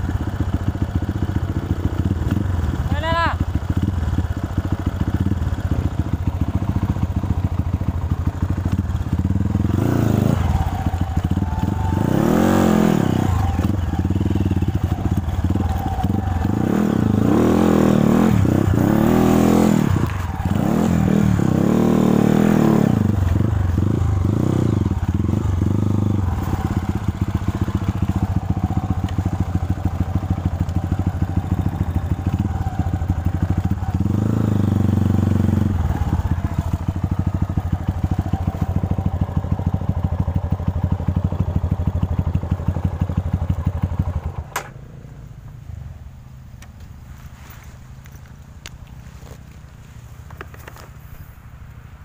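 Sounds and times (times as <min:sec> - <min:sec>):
motorcycle engine revving: 0:00.0 - 0:51.4.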